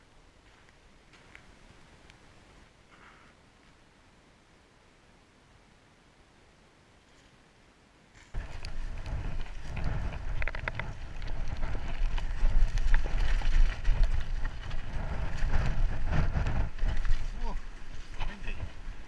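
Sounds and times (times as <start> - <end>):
bike rattling: 8.2 - 19.0
bike tyres rumbling on gravel: 8.2 - 19.0
wind buffeting microphone: 8.4 - 19.0.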